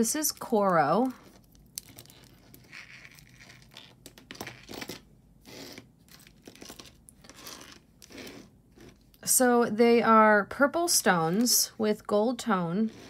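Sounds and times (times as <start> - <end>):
jewelry rustling and clicking: 0.1 - 9.2.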